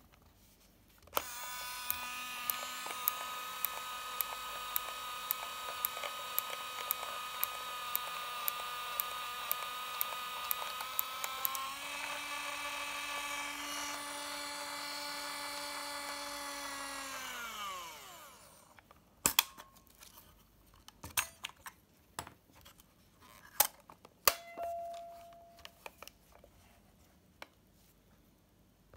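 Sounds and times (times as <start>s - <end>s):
camera motor whirring: 1.2s - 18.8s.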